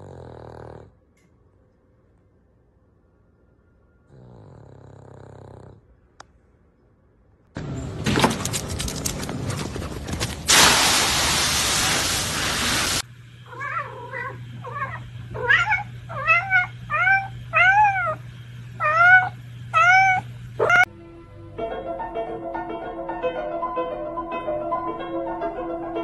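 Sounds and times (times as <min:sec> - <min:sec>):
cat meowing: 0:13.5 - 0:18.2, 0:18.8 - 0:20.9.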